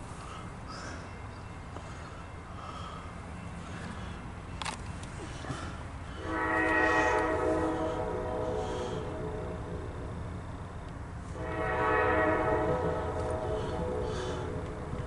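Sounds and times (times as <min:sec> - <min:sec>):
locomotive air horn: 0:06.1 - 0:15.0.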